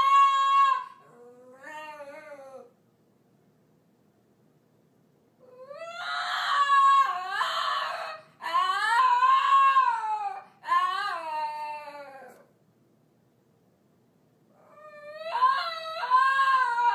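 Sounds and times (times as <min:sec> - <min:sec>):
dog howling: 0:00.0 - 0:02.7, 0:05.4 - 0:12.5, 0:14.6 - 0:16.9.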